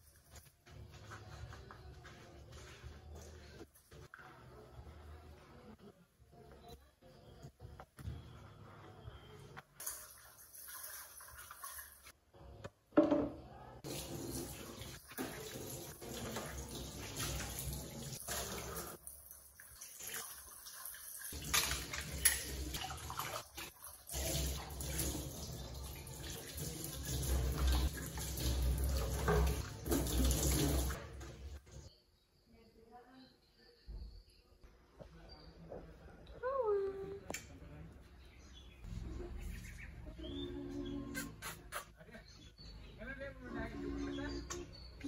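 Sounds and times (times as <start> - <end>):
water splashing off dishes: 13.2 - 31.6
faucet running into steel sink: 13.8 - 31.0.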